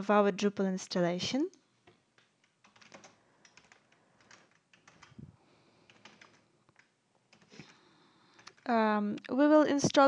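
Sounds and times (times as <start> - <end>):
faint keyboard typing: 1.4 - 9.4.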